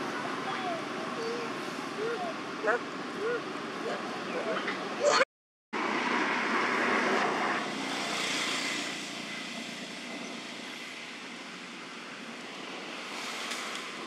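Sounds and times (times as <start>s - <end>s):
steady rushing noise: 5.8s - 14.0s.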